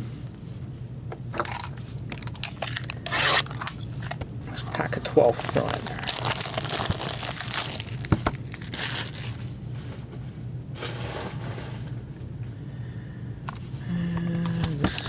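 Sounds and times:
cardboard packaging tearing: 0:02.7 - 0:03.7, 0:05.3 - 0:09.5
wrapper rustling: 0:05.1 - 0:09.6.

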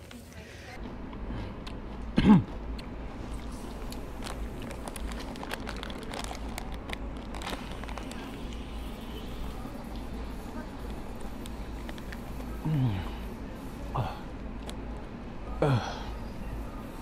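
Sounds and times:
foil chip pouch crinkling: 0:03.3 - 0:08.8.

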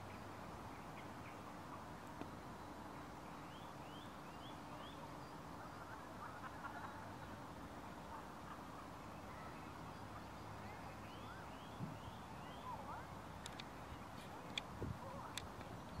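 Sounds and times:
birds chirping: 0:00.0 - 0:16.0
sharp clicks: 0:13.4 - 0:13.7, 0:15.3 - 0:16.0.

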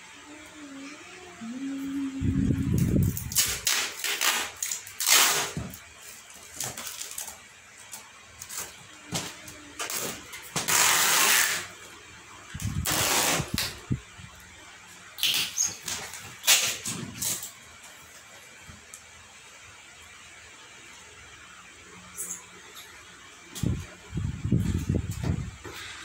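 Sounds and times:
packing tape pulled off roll: 0:02.8 - 0:11.7, 0:12.6 - 0:13.8, 0:15.2 - 0:17.6.

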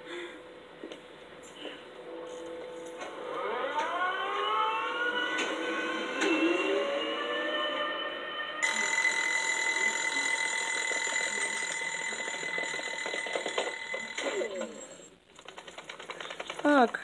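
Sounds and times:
alarm clock ringing: 0:03.1 - 0:15.6.

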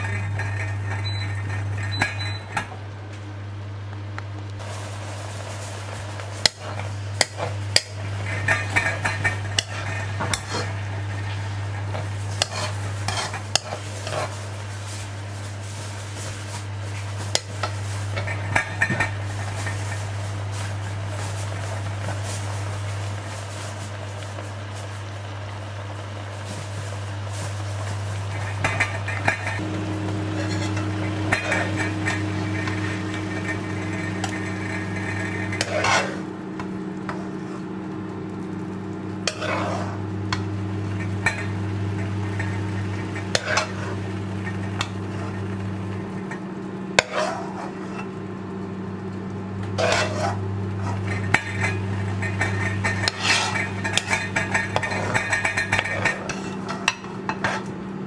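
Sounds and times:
low steady hum: 0:00.0 - 0:58.0
spoon scraping and knocking wok: 0:05.6 - 0:23.4, 0:27.4 - 0:37.6, 0:39.2 - 0:46.4, 0:47.0 - 0:48.1, 0:49.6 - 0:57.7.

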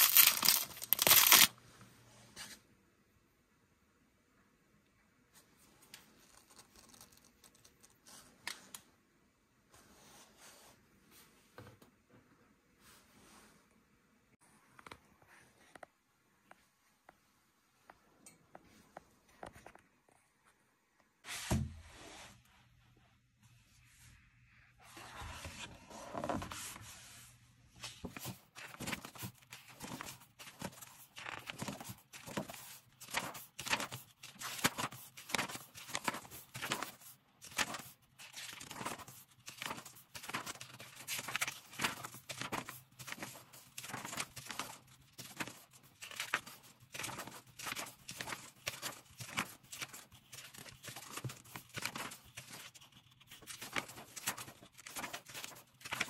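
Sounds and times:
paper pages turning: 0:00.0 - 0:01.6, 0:05.8 - 0:08.8, 0:27.8 - 0:56.0.

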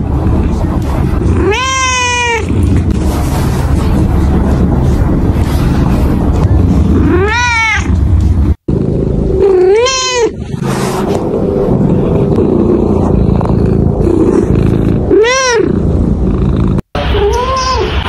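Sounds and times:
cat meowing: 0:01.3 - 0:02.5, 0:07.0 - 0:08.0, 0:09.4 - 0:10.4, 0:15.1 - 0:15.8.

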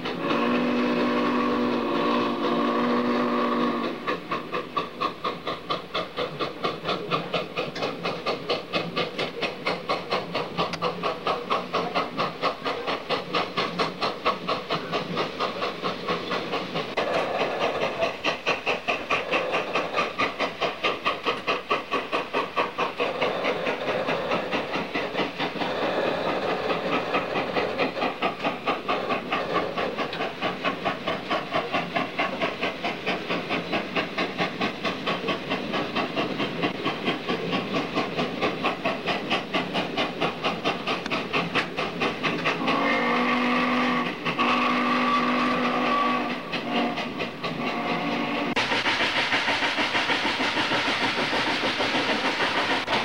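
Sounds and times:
steam hiss: 0:00.0 - 0:53.0
steam locomotive exhaust beating: 0:00.0 - 0:53.0
steam whistle blasts: 0:00.1 - 0:04.1, 0:42.6 - 0:48.6.

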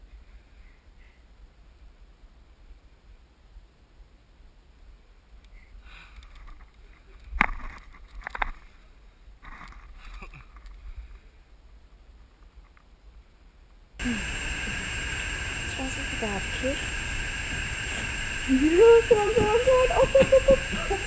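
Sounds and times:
low steady hum: 0:14.0 - 0:21.0.

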